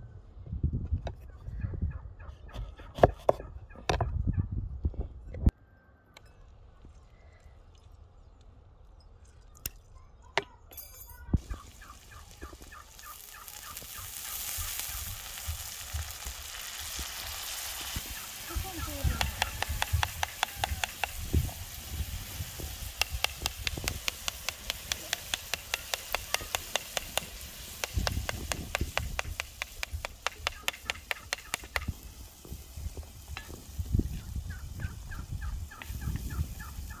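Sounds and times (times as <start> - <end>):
turkey gobbling: 11.4 - 14.5, 18.2 - 20.9, 30.3 - 32.0, 34.5 - 37.0
sharp evenly spaced clicks: 23.0 - 31.9.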